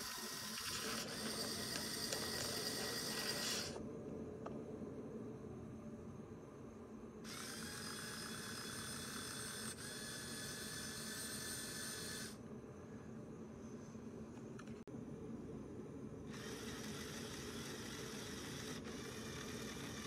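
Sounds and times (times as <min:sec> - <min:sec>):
small electric motors whining: 0:00.0 - 0:03.8, 0:07.2 - 0:12.4, 0:16.3 - 0:20.0
low steady hum: 0:00.0 - 0:20.0.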